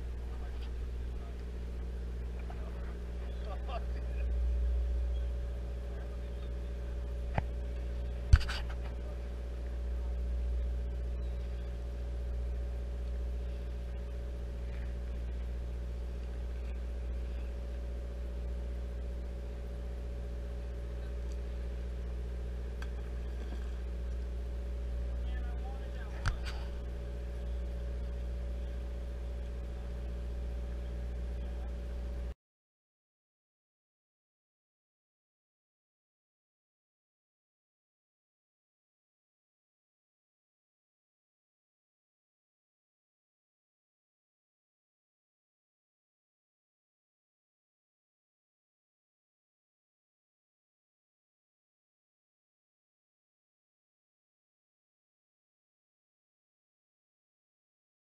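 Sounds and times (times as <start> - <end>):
boat engine humming: 0.0 - 32.4.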